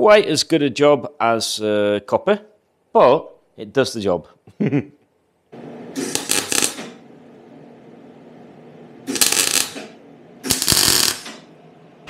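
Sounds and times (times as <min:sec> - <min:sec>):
steady low hum: 0:05.5 - 0:12.0
welder arc crackling: 0:05.6 - 0:12.0.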